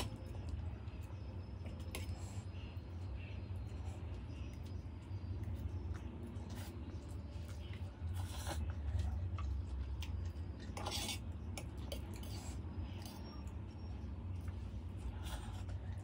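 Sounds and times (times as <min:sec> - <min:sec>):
chewing: 0:00.0 - 0:13.6
steady low hum: 0:00.0 - 0:16.0
fork scraping metal plate: 0:10.8 - 0:11.2.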